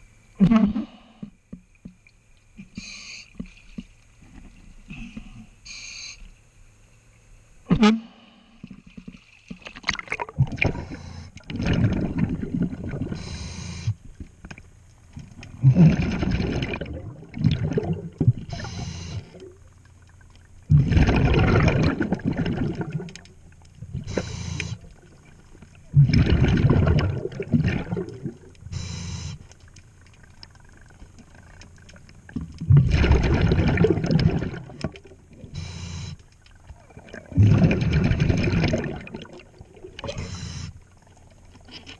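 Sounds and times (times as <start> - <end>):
regulator hiss: 2.6 - 3.5, 5.1 - 6.4, 13.1 - 14.1, 18.5 - 19.4, 24.0 - 25.0, 28.7 - 29.6, 35.4 - 36.3, 40.1 - 40.9
bubbling exhaled air underwater: 8.6 - 14.0, 15.5 - 41.8.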